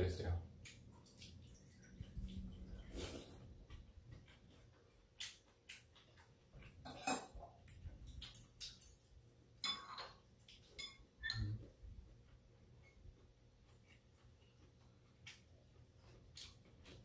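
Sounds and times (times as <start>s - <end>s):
chopsticks clinking on steel bowls: 6.8s - 7.5s, 9.6s - 11.6s.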